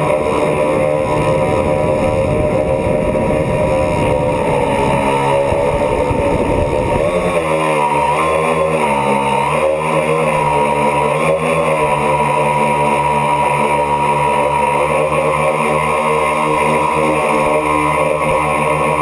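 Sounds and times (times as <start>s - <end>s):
rough low rumble: 0.0s - 7.9s
drone motors and propellers whining: 0.0s - 19.0s.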